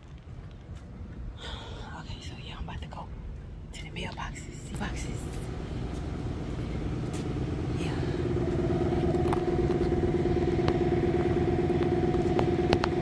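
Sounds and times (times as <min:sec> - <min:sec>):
motor humming: 0:04.8 - 0:13.0.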